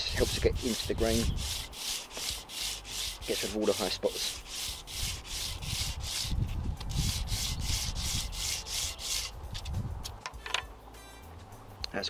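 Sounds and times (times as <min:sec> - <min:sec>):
wood rubbed on sandpaper: 0:00.0 - 0:09.4.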